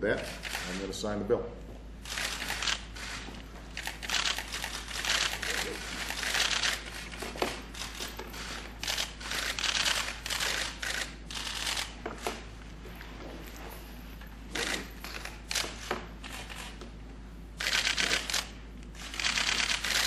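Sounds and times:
camera shutters clicking: 0.2s - 0.8s, 2.0s - 12.4s, 14.6s - 16.8s, 17.6s - 20.0s.

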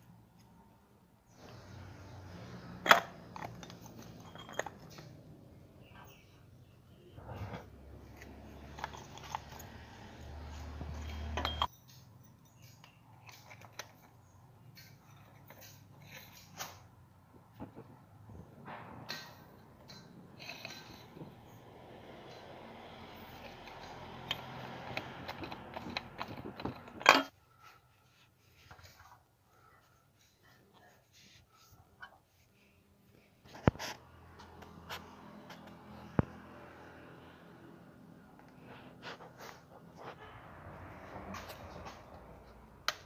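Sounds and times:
oil filter rubbing and clicking: 2.7s - 5.9s, 7.4s - 16.9s, 19.1s - 29.2s.

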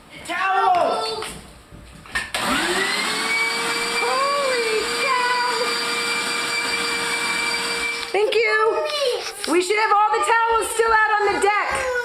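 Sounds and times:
vacuum cleaner running: 2.3s - 8.2s.

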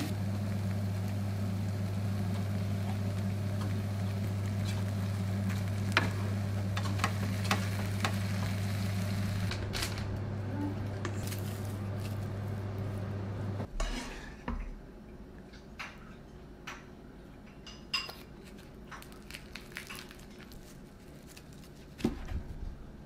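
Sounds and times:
rice paddle patting rice: 0.0s - 9.7s
low steady hum: 0.0s - 23.0s
utensils clicking and tapping: 5.5s - 8.6s.

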